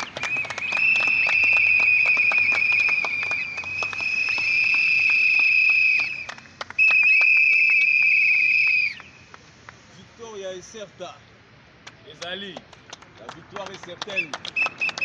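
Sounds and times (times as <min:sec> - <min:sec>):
group clapping rapidly: 0:00.0 - 0:09.1, 0:11.8 - 0:15.0
plastic whistle blasts: 0:00.0 - 0:09.2, 0:14.1 - 0:15.0.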